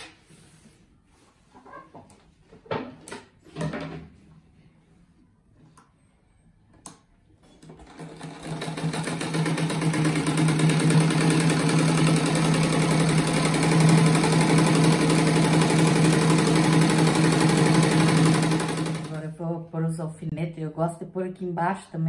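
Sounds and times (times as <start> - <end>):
industrial sewing machine running: 7.9 - 19.2.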